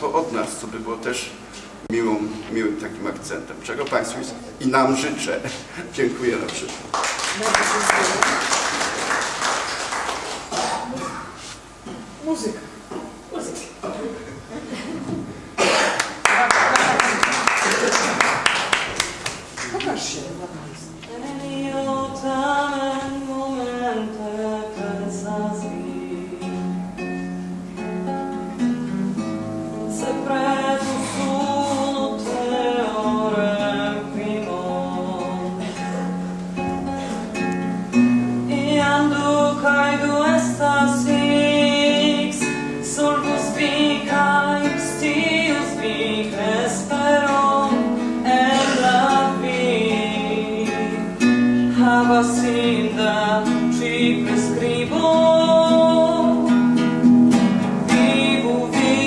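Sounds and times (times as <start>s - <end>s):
acoustic guitar: 0.0s - 59.0s
woman singing: 21.0s - 26.7s, 29.7s - 36.2s, 38.4s - 51.1s, 51.7s - 56.6s, 57.9s - 59.0s.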